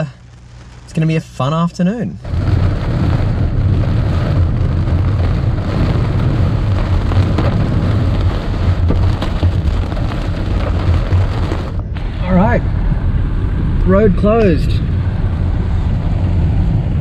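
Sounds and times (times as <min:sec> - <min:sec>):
heavy rain on car roof: 0:00.0 - 0:12.6
tyres rumbling on wet road: 0:02.2 - 0:17.0.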